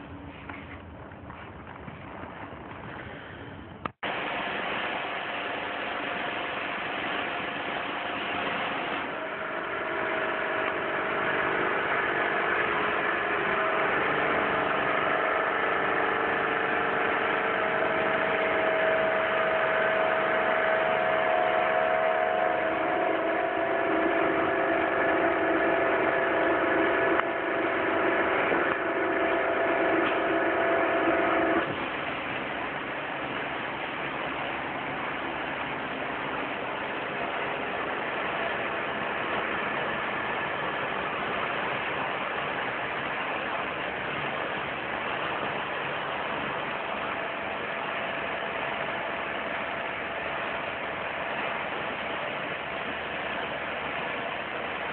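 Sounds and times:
washer motor humming: 3.8 - 54.9
pressure washer spraying concrete: 3.9 - 54.9.

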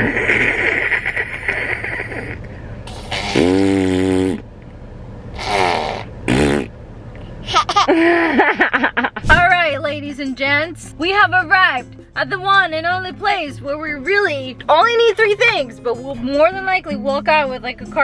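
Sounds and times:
toddler blowing raspberries: 0.0 - 4.5, 5.4 - 6.7
toddler giggling: 7.4 - 8.8.

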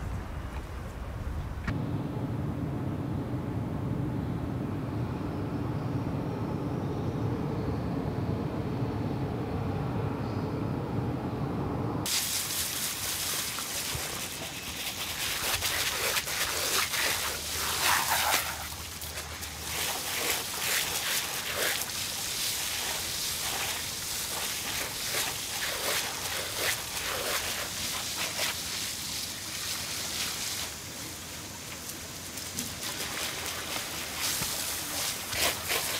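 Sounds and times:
water splashes: 12.1 - 35.9
water spray hissing on paving: 12.1 - 35.9.

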